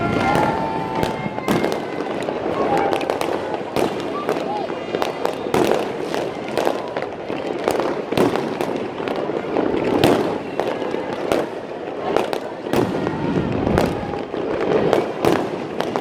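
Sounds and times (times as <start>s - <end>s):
fireworks bangs and crackling: 0.0s - 16.0s.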